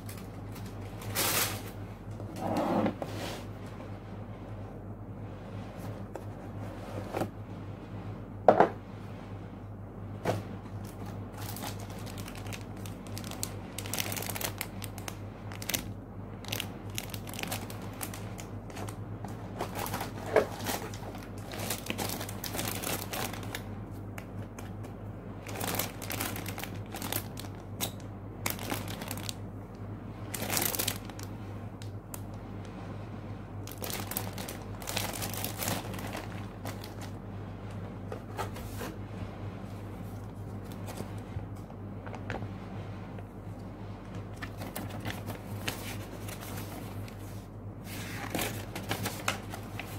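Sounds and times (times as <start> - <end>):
plastic bags crinkling: 0.0 - 1.8, 10.7 - 23.7, 25.4 - 29.4, 30.3 - 31.3, 33.6 - 37.2, 44.4 - 47.3
steady low hum: 0.0 - 49.9.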